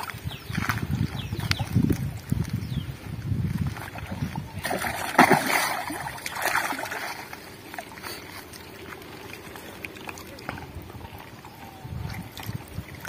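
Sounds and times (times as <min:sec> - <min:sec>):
fish splashing in water: 0:03.6 - 0:13.0.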